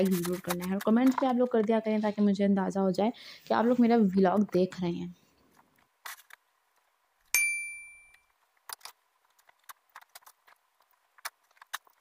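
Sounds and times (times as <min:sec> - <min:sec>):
clothes hanger metallic clink: 0:07.4 - 0:08.2.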